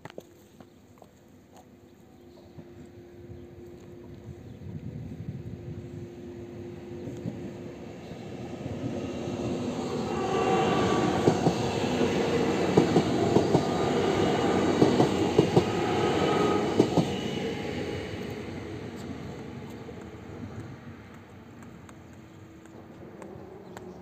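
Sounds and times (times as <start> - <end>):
train rolling rumble: 2.4 - 24.0
train wheels clacking over joints: 10.9 - 17.2.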